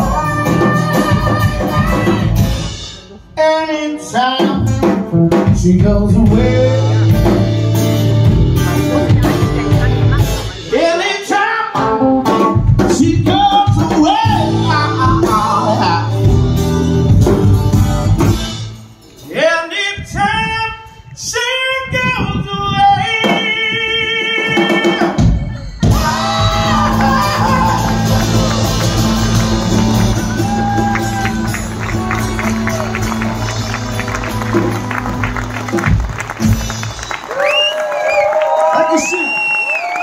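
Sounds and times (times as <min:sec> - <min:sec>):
man singing: 0:00.0 - 0:02.5, 0:03.1 - 0:07.7, 0:10.5 - 0:17.2, 0:19.2 - 0:29.3
drum kit: 0:00.0 - 0:03.3, 0:04.2 - 0:19.5, 0:23.2 - 0:37.6
acoustic guitar: 0:00.0 - 0:37.1.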